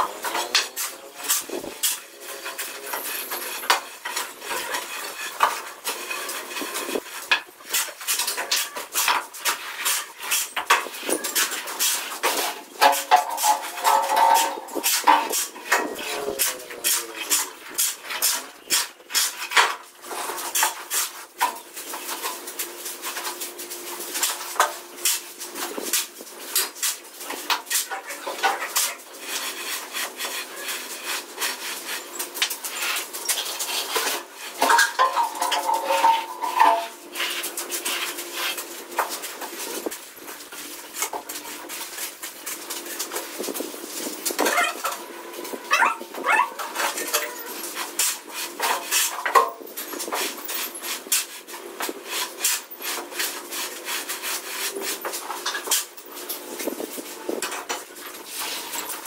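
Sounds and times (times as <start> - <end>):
trowel scraping wet mortar: 0.0 - 59.0.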